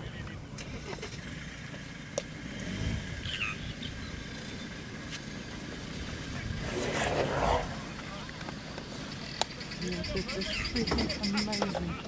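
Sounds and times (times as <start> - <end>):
vehicle engine idling: 0.0 - 12.0
bird chirping: 3.2 - 5.2.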